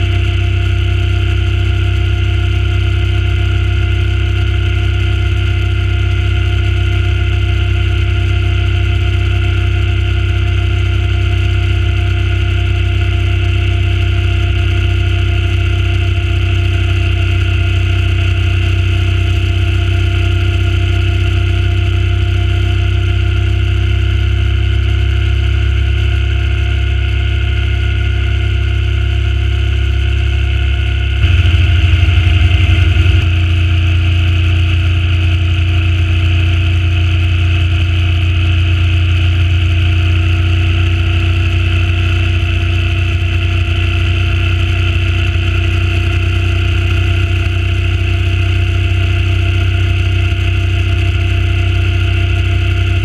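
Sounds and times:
motorcycle engine cruising: 26.3s - 42.0s.

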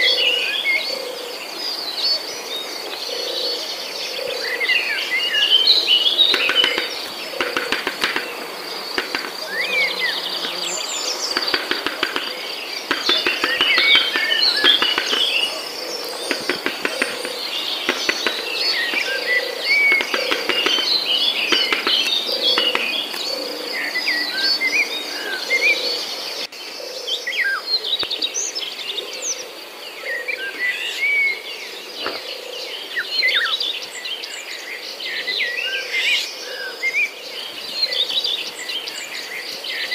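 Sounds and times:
small birds chirping: 4.2s - 26.5s
high insect trill: 6.1s - 23.8s.

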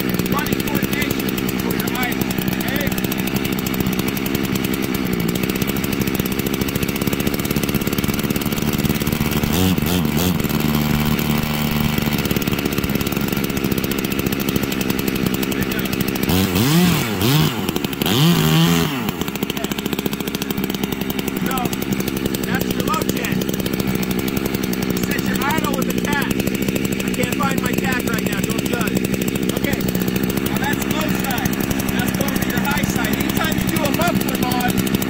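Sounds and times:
chainsaw idling and revving: 0.0s - 35.0s.

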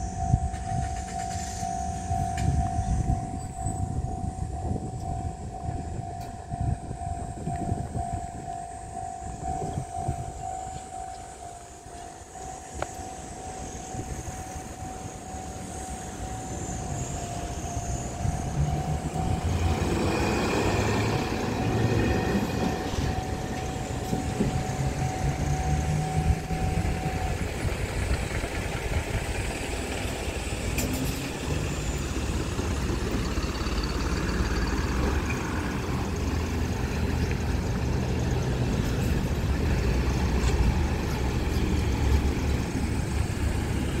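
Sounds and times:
level-crossing alarm tone: 0.0s - 44.0s
road traffic passing: 0.0s - 44.0s.

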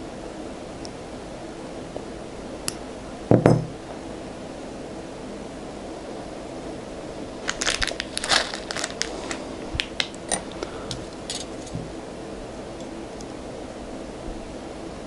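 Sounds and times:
plastic bag crinkling: 7.4s - 11.8s.

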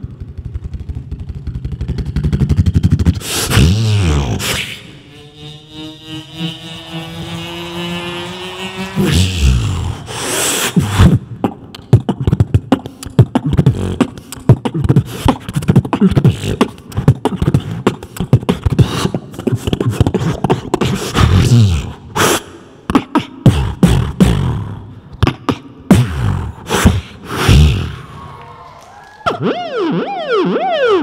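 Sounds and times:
person beatboxing into a microphone: 0.0s - 28.1s.

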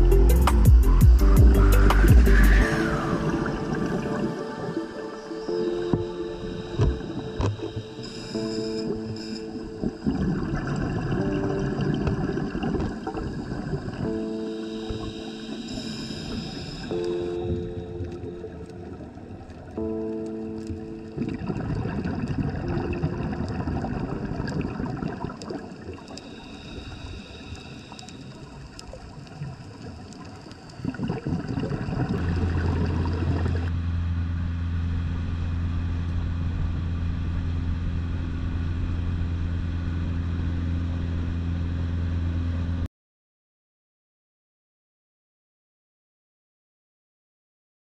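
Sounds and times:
underwater rushing and bubbling: 0.0s - 42.7s
boat engine droning: 1.2s - 30.8s, 32.2s - 42.9s.

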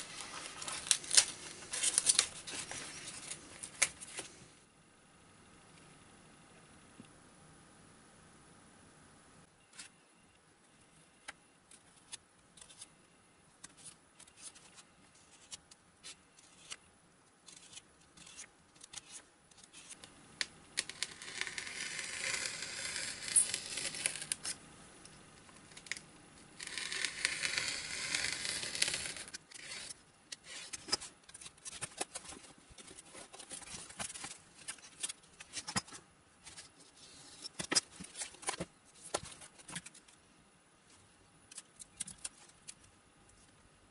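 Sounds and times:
utility knife cutting foam: 26.6s - 30.7s.

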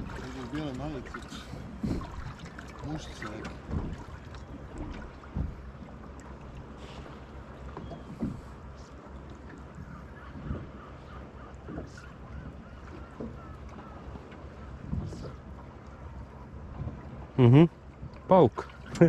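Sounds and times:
water lapping against hull: 0.0s - 19.0s.

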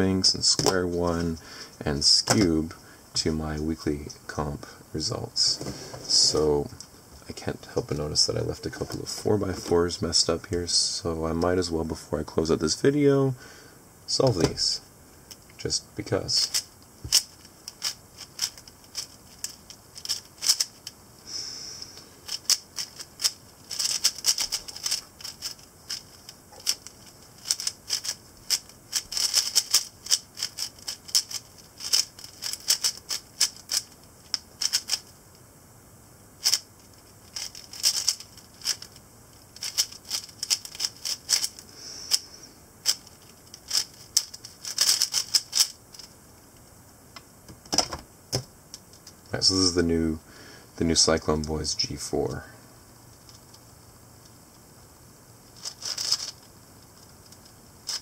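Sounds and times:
puzzle cube clicking and clacking: 16.4s - 20.9s, 22.2s - 35.1s, 37.3s - 39.0s, 39.6s - 42.2s, 42.8s - 46.1s, 55.6s - 56.5s.

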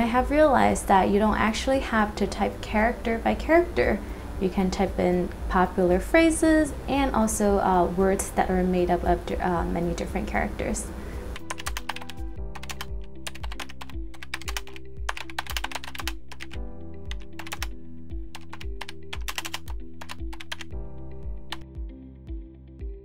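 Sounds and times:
fast typing on keyboard: 11.4s - 20.8s.

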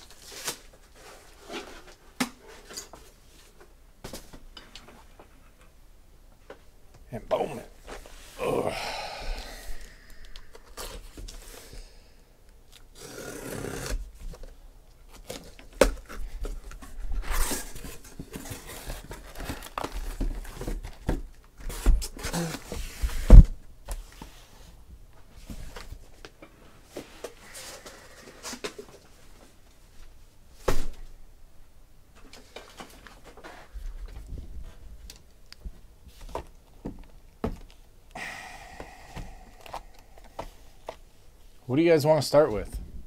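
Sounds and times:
cardboard and plastic wrap rustling: 0.0s - 5.2s, 14.0s - 26.2s.

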